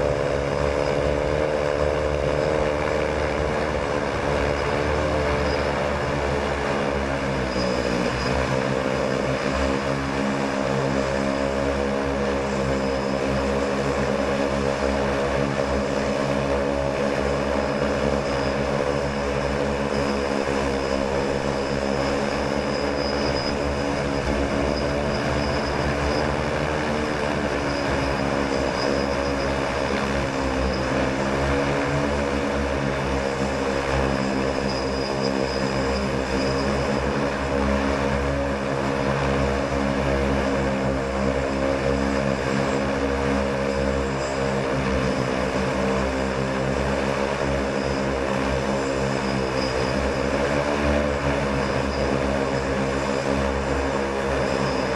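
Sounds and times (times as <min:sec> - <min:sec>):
multirotor propellers droning: 0:00.0 - 0:54.9.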